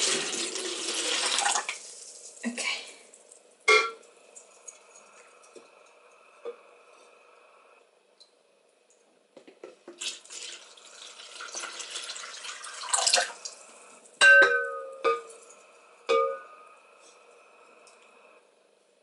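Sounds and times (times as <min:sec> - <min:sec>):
liquid pouring into bucket: 0:00.0 - 0:02.2, 0:10.0 - 0:13.5.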